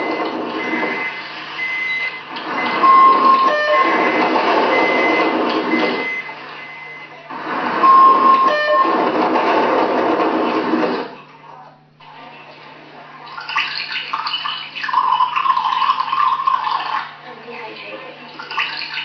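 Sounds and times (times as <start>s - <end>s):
short beeping tones: 0.0s - 7.1s, 7.8s - 9.0s.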